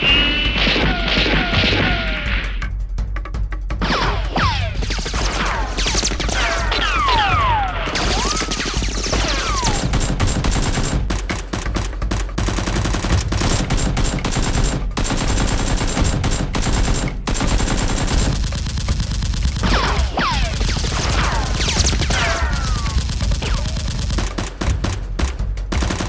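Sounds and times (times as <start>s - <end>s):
rapid automatic gunfire: 3.9s - 26.0s.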